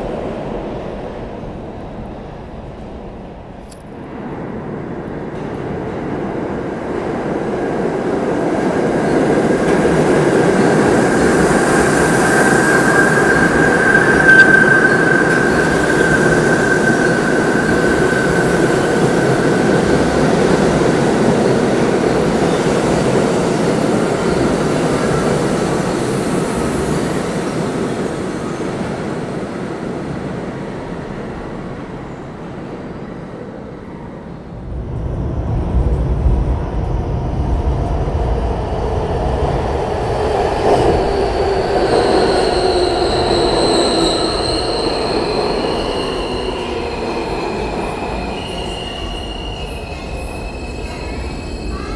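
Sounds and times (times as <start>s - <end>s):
train wheels rumbling on rails: 0.0s - 51.9s
high-pitched wheel squeal: 11.4s - 19.8s, 41.4s - 51.9s.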